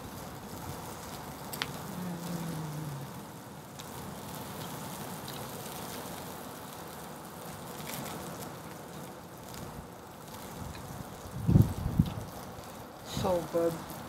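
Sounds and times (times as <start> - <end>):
faint crackles: 0.0 - 14.0
steak sizzling on a grill: 0.0 - 14.0
person humming mmm: 1.8 - 3.2.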